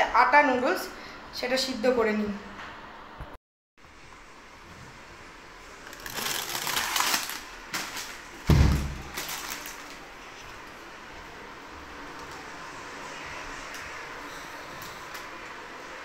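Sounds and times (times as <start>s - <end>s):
plastic packets rustling: 5.8s - 10.8s
loud thump: 8.5s - 9.0s.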